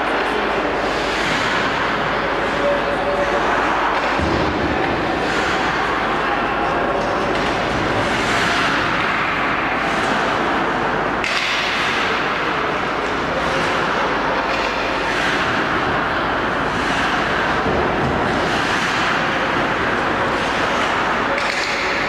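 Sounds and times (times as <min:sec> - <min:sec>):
steady loud noise: 0:00.0 - 0:22.0
skate blades scraping on ice: 0:13.3 - 0:22.0.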